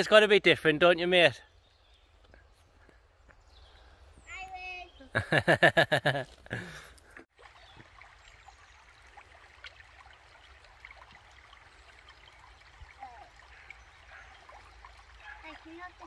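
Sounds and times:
trickling water: 5.2s - 16.0s.

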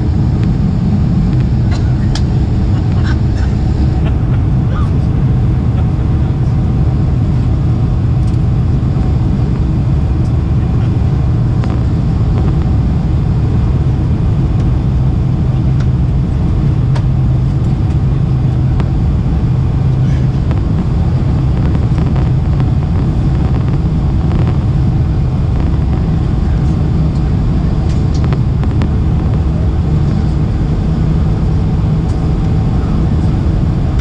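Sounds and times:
airliner cabin roar: 0.0s - 34.0s.

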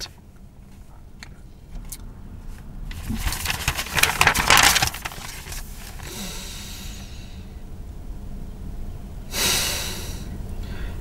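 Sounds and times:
paper rustling and crinkling: 2.9s - 6.1s.

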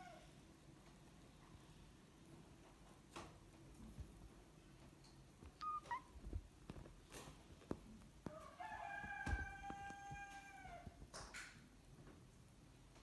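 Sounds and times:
rooster crowing: 8.2s - 11.0s.

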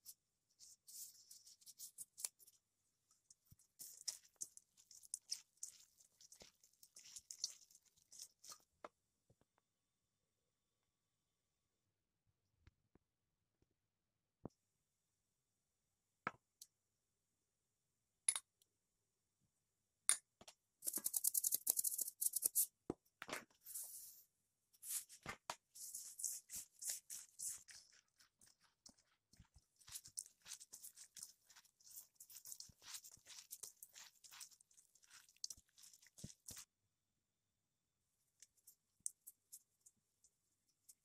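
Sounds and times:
gloved hand squelching filling: 3.3s - 8.7s, 26.1s - 36.7s
seasoning pattering into steel bowl: 3.8s - 8.6s, 25.8s - 36.7s.

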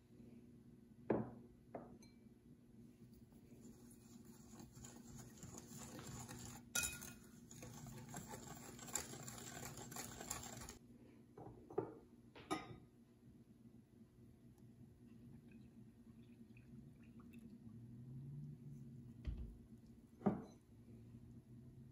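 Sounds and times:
whisk swishing in bowl: 3.2s - 10.8s.

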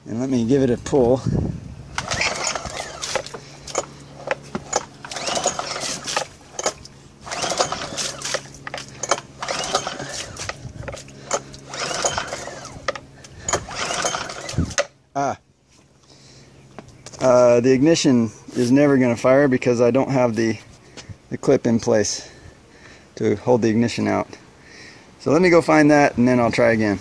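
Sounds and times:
recoil starter cord whirring: 1.8s - 15.0s
engine turning over: 1.9s - 15.0s.

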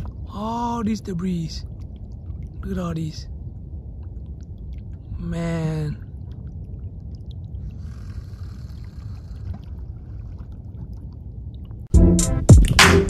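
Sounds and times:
wind and water rumble: 0.0s - 13.0s
electronic music with heavy beat: 12.0s - 13.0s.

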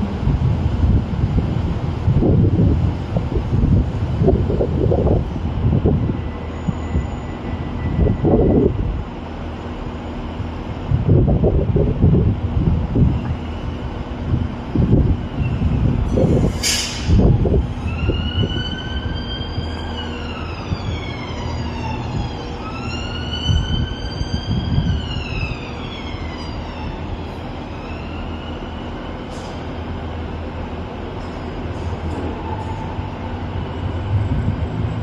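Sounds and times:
low engine hum: 0.0s - 6.3s
emergency siren wailing: 17.1s - 29.2s.

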